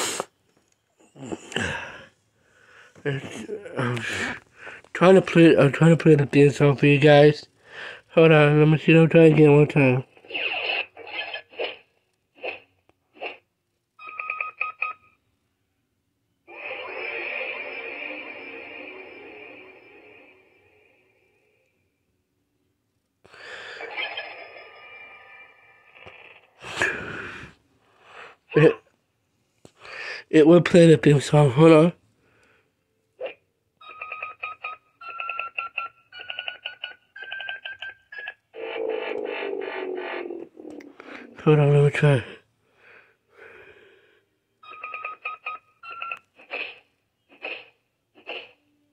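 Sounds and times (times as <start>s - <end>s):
toy electronic sound effects: 16.5s - 20.3s, 33.8s - 40.9s, 44.6s - 48.7s.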